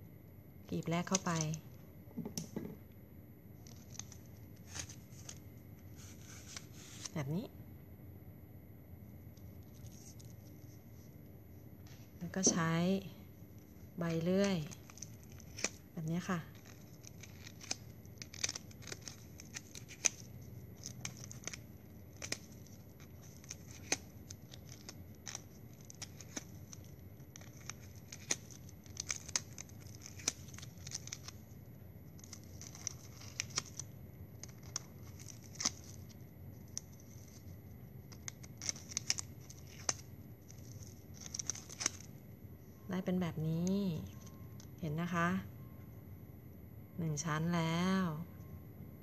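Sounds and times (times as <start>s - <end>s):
plastic straws clicking and rustling: 14.1s - 31.4s, 32.1s - 42.1s.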